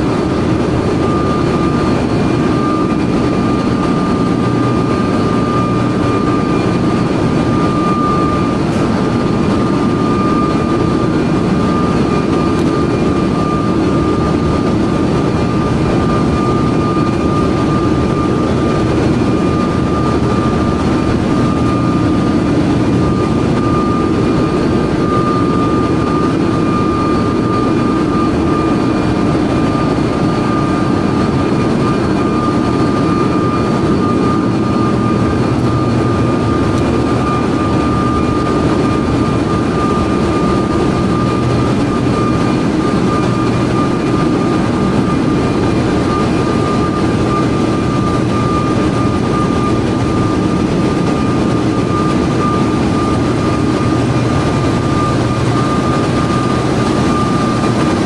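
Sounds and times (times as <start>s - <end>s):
constant high-pitched whine: 0.0s - 58.0s
engine room machinery din: 0.0s - 58.0s.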